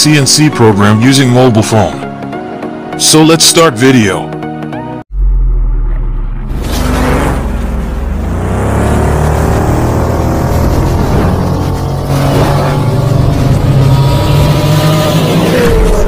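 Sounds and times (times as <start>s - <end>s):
sci-fi motorcycle engine revving: 5.2s - 16.0s.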